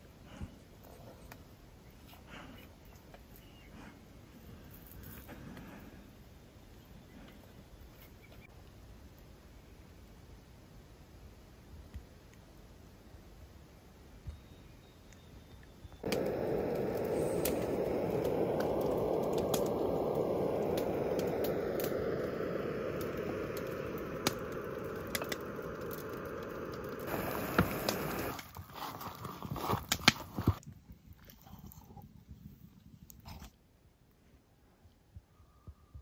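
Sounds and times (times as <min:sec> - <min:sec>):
cooking flame hissing: 0:16.0 - 0:28.6
sharp crackles: 0:16.0 - 0:30.7.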